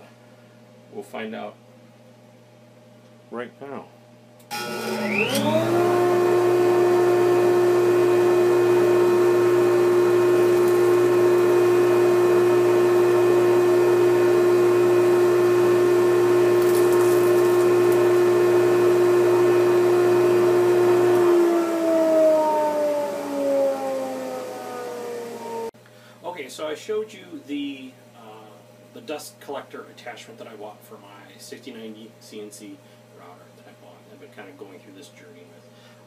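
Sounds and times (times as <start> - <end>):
dust collection vacuum whine: 4.5 - 25.8.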